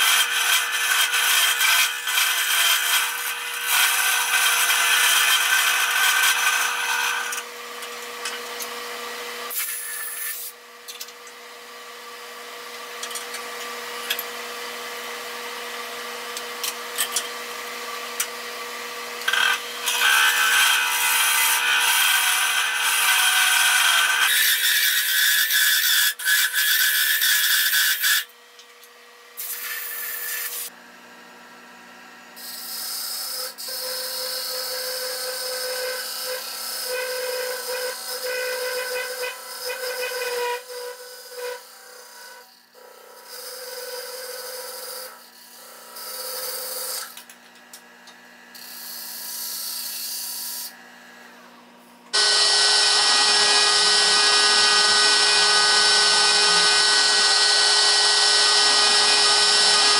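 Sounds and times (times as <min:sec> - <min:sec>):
lathe tools cutting wood: 0:00.0 - 0:10.6, 0:12.3 - 0:28.3, 0:29.4 - 0:30.8, 0:32.4 - 0:47.3, 0:52.1 - 0:59.9
lathe motor humming: 0:52.2 - 0:59.9.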